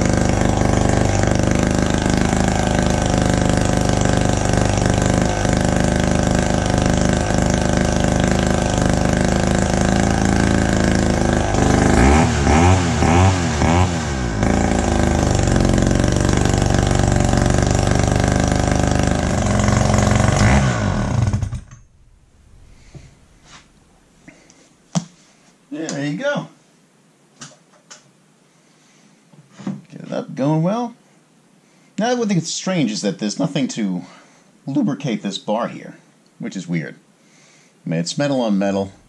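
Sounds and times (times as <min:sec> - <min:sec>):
two-stroke saw engine revving: 0:00.0 - 0:21.9.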